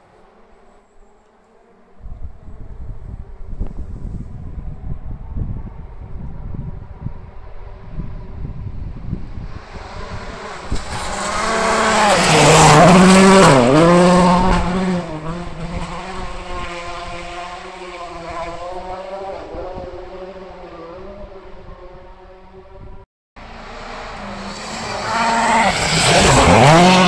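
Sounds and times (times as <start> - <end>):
gravel spray and tyre noise: 7.0 - 22.3, 23.4 - 27.0
rally car engine passing: 9.2 - 27.0.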